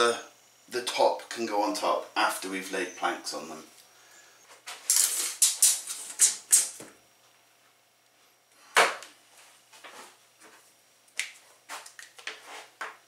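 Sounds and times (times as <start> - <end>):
tape measure rustles and clicks: 4.7 - 6.8.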